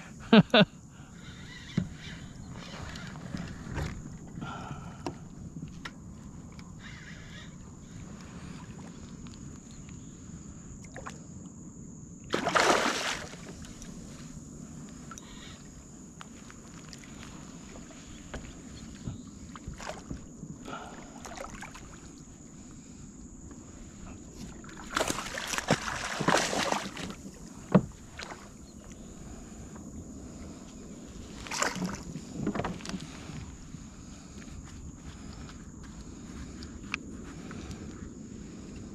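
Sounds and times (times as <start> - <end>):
fish splashing at water surface: 12.3 - 13.4, 24.9 - 27.2.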